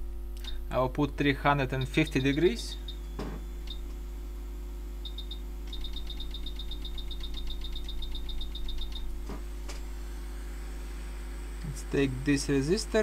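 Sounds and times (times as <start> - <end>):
mains hum: 0.0 - 13.0
control panel beeping: 1.7 - 3.9, 5.0 - 9.2.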